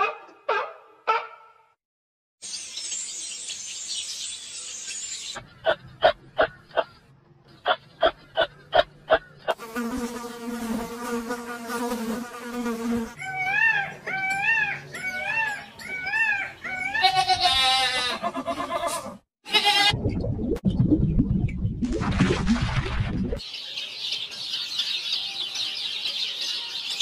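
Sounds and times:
rising and falling animal calls: 13.2 - 19.9
low rumble: 20.0 - 23.4.

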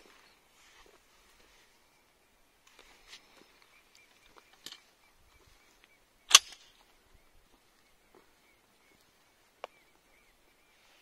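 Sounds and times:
shotgun shot: 6.3 - 6.7.

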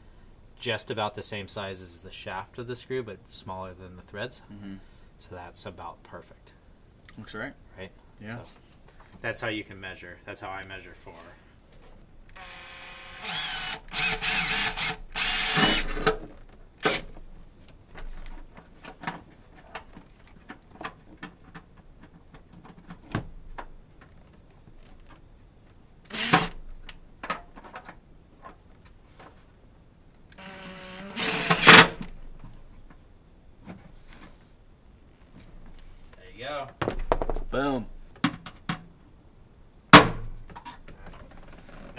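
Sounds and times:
power drill motor whining: 12.3 - 16.1, 26.1 - 26.6, 30.3 - 31.9.

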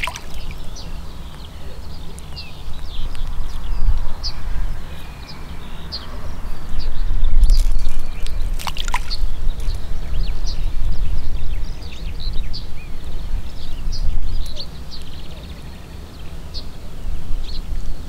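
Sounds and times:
water splashing: 0.0 - 0.9, 7.4 - 9.7
small birds chirping: 0.0 - 18.0
wind rumbling on microphone: 0.0 - 18.0.

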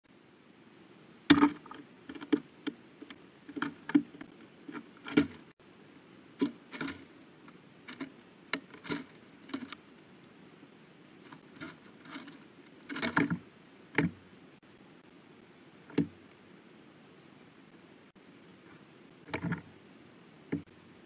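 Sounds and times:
bird pecking on wooden feeder: 1.3 - 5.5, 6.4 - 7.2, 7.9 - 10.3, 11.3 - 14.2, 15.8 - 16.2, 18.5 - 19.7.

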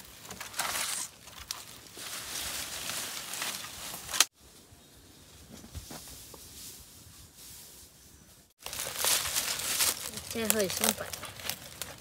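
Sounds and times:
leaves and brush rustling: 0.0 - 12.0
branch snapping: 2.8 - 4.3.

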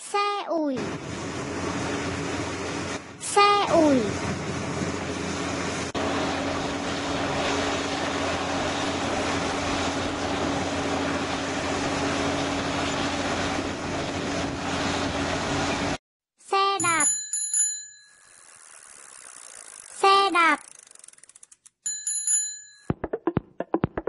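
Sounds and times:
bulldozer diesel engines droning: 0.8 - 16.0.

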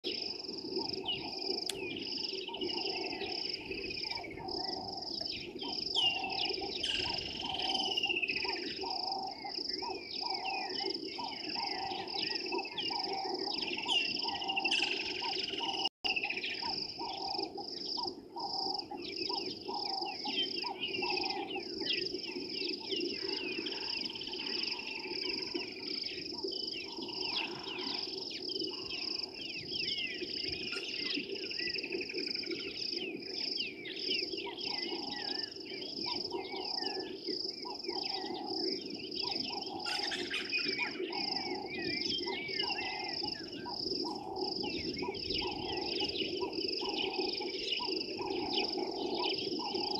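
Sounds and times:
birds chirping and warbling: 0.1 - 49.9.

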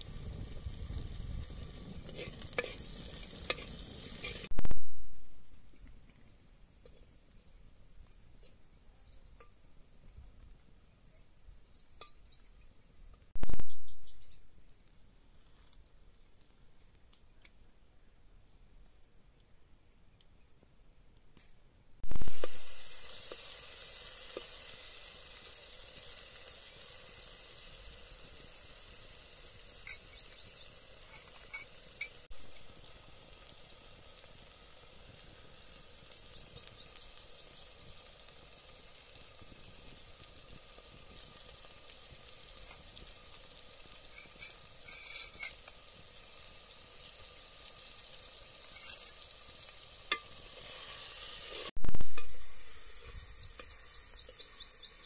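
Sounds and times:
oil sizzling in a pot: 0.0 - 4.5, 22.0 - 55.0
birds chirping: 11.4 - 14.5, 29.4 - 31.4, 35.4 - 38.0, 46.6 - 49.2, 53.1 - 55.0.

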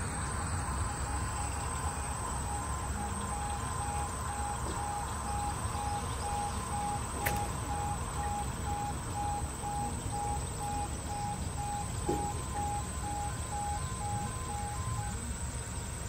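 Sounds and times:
level crossing alarm pulsing: 0.0 - 16.0
sharp click: 7.2 - 7.5.

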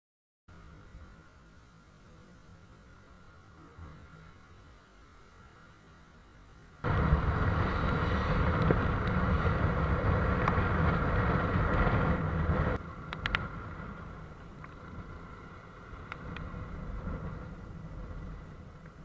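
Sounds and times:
wind noise: 6.8 - 19.0
motorcycle riding on wet road: 6.9 - 19.0.

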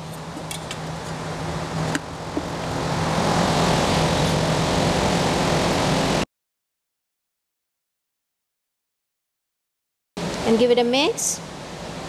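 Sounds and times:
ventilation noise with low hum: 0.0 - 6.2, 10.2 - 12.0.

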